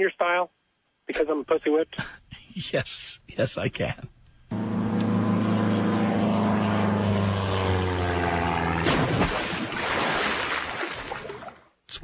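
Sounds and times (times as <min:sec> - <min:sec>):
propeller airplane engine falling pitch: 0:04.5 - 0:09.5
plane crash: 0:04.5 - 0:09.7
noisy wash: 0:04.5 - 0:11.4.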